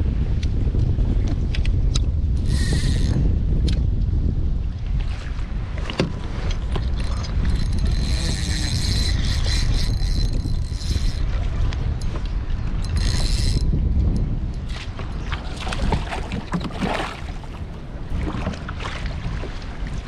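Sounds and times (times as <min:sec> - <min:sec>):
wind rumble on microphone: 0:00.0 - 0:20.0
fishing reel whirring: 0:02.4 - 0:03.2, 0:06.7 - 0:13.8.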